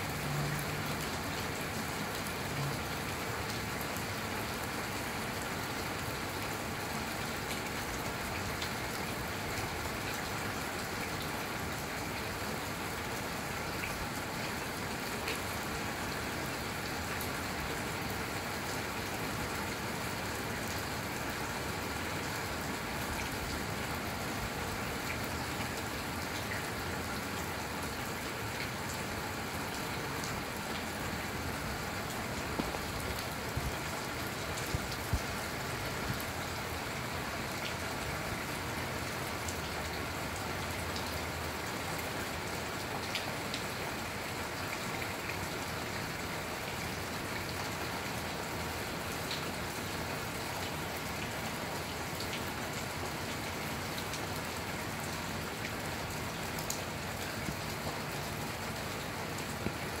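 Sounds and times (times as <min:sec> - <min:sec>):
steady rain falling: 0:00.0 - 1:00.0
taps of single raindrops: 0:32.5 - 0:33.7.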